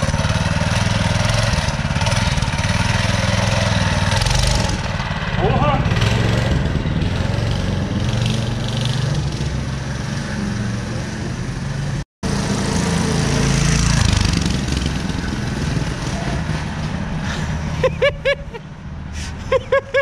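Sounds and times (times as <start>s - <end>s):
mini bike engine running: 0.0s - 9.5s, 12.3s - 17.0s.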